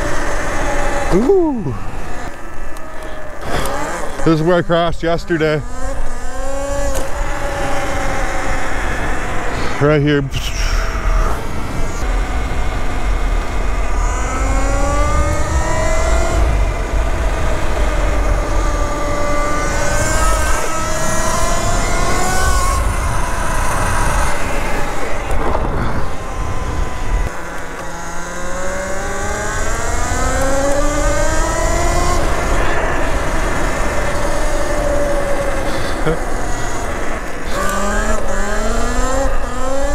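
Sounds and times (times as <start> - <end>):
electric motor whine: 0.0 - 39.9
tyre noise on asphalt: 5.3 - 39.9
wind rumbling on microphone: 5.4 - 27.3.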